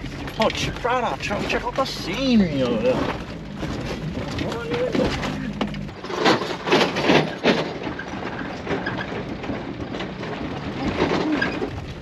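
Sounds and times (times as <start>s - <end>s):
car driving on dirt road: 0.0s - 12.0s
loud knocks and rattles: 2.8s - 12.0s.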